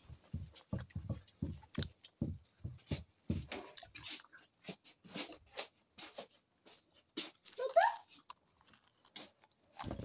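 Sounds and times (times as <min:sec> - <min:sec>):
wet chewing and lip-smacking: 0:01.6 - 0:02.2, 0:03.2 - 0:04.6, 0:07.2 - 0:10.0.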